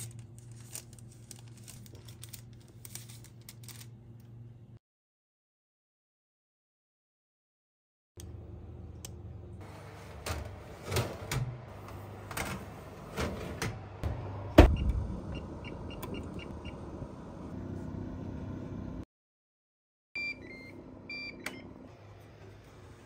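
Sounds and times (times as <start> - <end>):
oven door shutting: 9.7 - 15.1.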